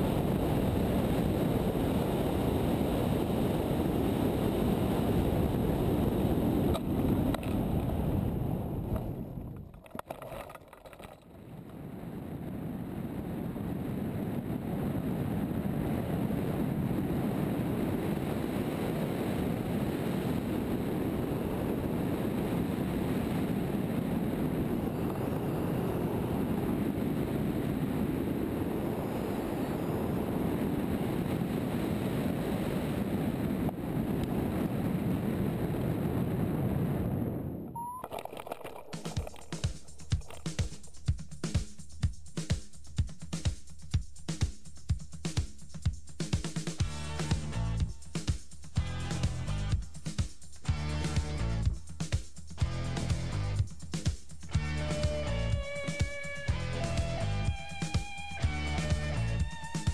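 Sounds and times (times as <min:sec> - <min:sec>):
wind rushing over microphone: 0:00.0 - 0:10.3, 0:11.0 - 0:40.8.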